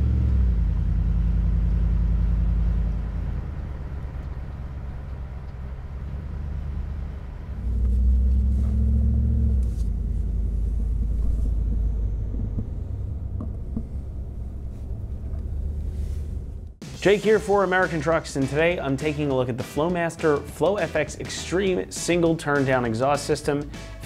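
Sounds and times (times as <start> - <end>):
engine idling rumble: 0.0 - 16.8.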